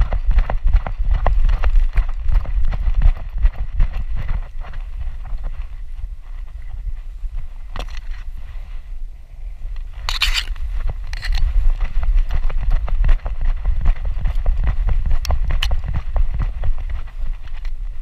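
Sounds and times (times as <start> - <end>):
wind and jostling rumble: 0.0 - 18.0
grass brushing camera: 1.2 - 9.0, 9.7 - 18.0
camera knocks and rattles: 10.1 - 17.8.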